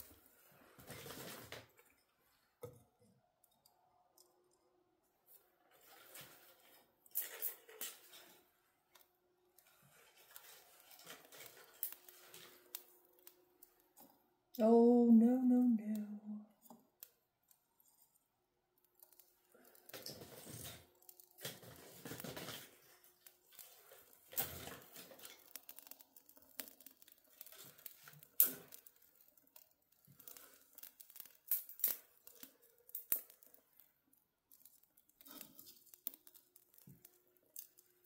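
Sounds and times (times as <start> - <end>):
kindling crackling and snapping: 0.0 - 2.6, 5.3 - 38.0.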